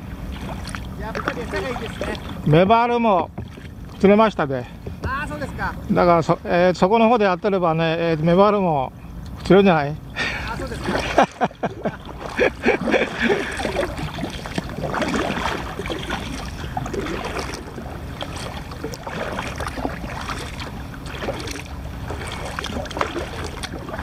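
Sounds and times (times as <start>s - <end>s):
splashes: 0.0s - 4.2s, 10.2s - 24.0s
water sloshing against hull: 0.0s - 24.0s.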